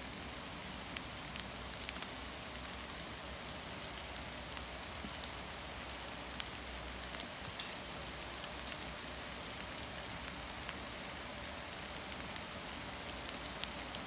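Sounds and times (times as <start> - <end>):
light rain falling: 0.0 - 14.0
raindrops tapping on fabric: 3.8 - 11.0, 11.6 - 14.0.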